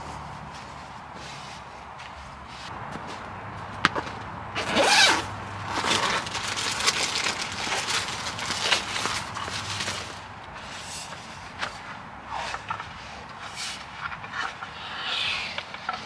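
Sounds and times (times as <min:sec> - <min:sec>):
zipper pulled open: 0:04.6 - 0:06.2
bag contents rustling: 0:04.6 - 0:10.3
nylon fabric rustling: 0:04.6 - 0:10.3.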